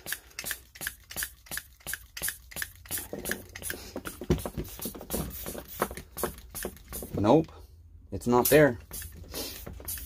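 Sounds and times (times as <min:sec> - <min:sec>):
hand pump hissing strokes: 0:08.8 - 0:10.0.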